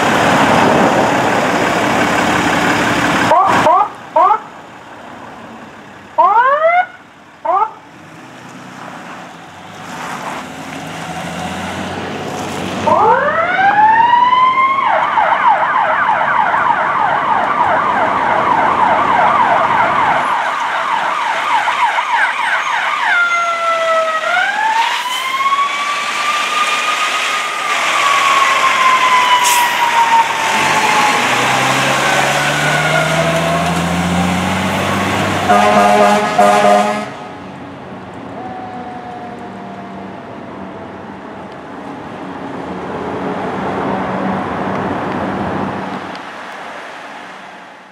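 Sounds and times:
fire engine siren wailing: 0:00.0 - 0:04.7, 0:06.0 - 0:07.9, 0:12.8 - 0:41.6
loud horn: 0:35.4 - 0:37.4.

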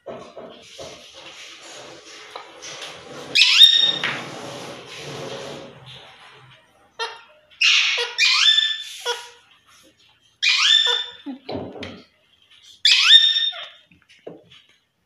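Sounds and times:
parakeets squawking: 0:03.4 - 0:04.0, 0:07.0 - 0:09.4, 0:10.4 - 0:11.2, 0:12.8 - 0:13.8.

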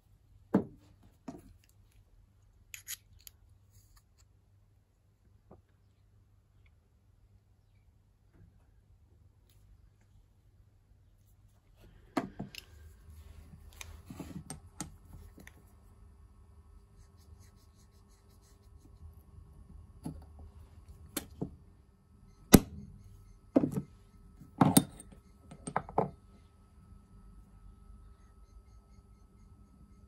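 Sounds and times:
faint steady hum: 0:00.0 - 0:30.0
small metal parts clicking and knocking: 0:02.7 - 0:03.4.

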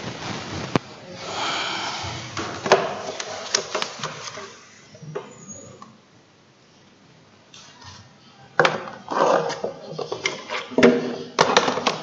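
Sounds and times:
objects clicking and clattering: 0:08.6 - 0:12.0.

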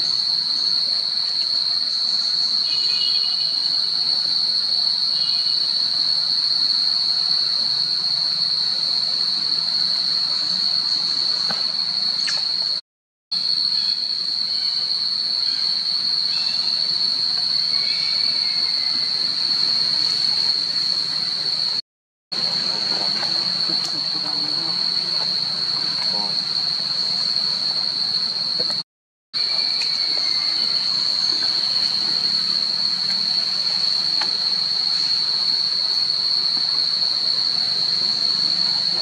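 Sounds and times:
high-pitched insect drone: 0:13.4 - 0:21.8, 0:22.4 - 0:28.8, 0:29.4 - 0:39.0.

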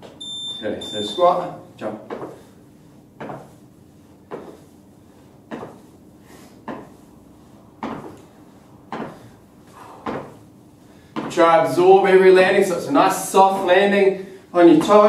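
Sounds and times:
trainers thudding on rubber flooring: 0:02.0 - 0:02.5, 0:03.2 - 0:03.6, 0:04.2 - 0:04.6, 0:05.4 - 0:05.9, 0:06.6 - 0:07.0, 0:07.8 - 0:10.4, 0:11.1 - 0:11.7, 0:14.7 - 0:15.0.

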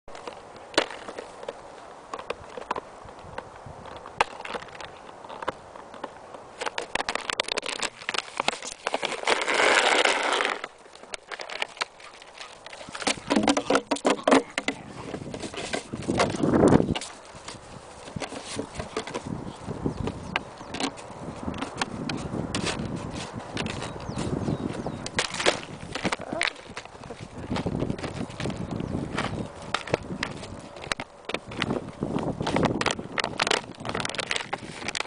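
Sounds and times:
plastic bottle crackling and clattering: 0:03.9 - 0:35.0.

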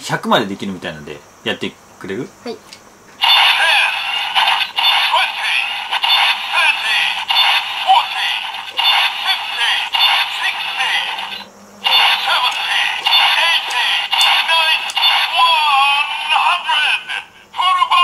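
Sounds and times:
toy magazine clicking: 0:03.2 - 0:15.5
toy gun electronic music: 0:03.2 - 0:17.2.

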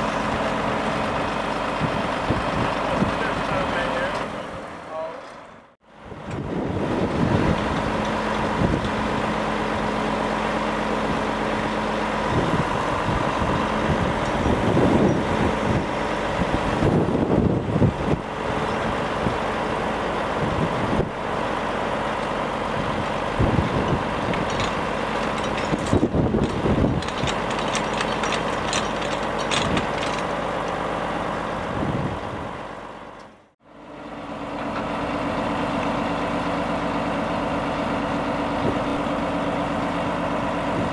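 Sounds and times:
diesel engine running: 0:00.0 - 0:40.9
metallic chain clinks: 0:24.4 - 0:30.4.

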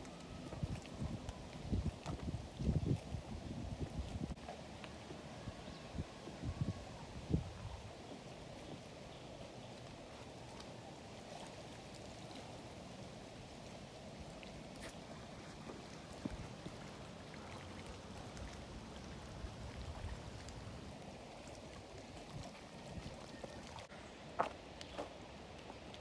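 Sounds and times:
ripples lapping at shore: 0:08.0 - 0:26.0
small splashes: 0:09.4 - 0:23.9.

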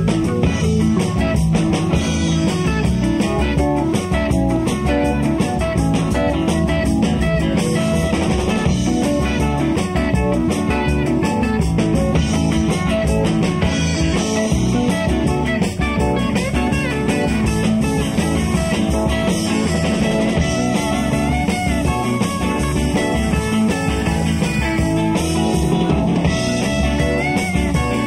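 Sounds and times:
bass guitar: 0:00.0 - 0:28.0
drum kit: 0:00.0 - 0:28.0
electric guitars: 0:00.0 - 0:28.0.

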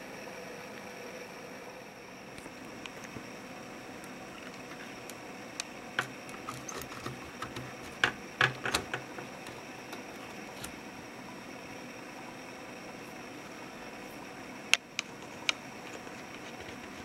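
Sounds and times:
hands clicking plastic parts: 0:04.4 - 0:10.8.

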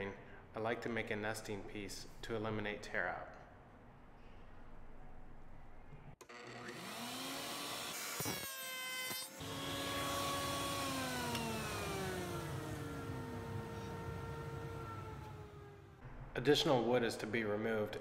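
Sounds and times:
router cutting wood: 0:06.2 - 0:16.0
router motor whine: 0:06.2 - 0:16.0.

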